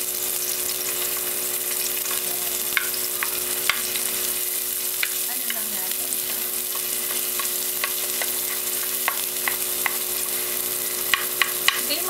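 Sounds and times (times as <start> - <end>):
onion sizzling in a frying pan: 0.0 - 12.0
spatula knocking a pan: 2.1 - 4.1, 4.9 - 12.0.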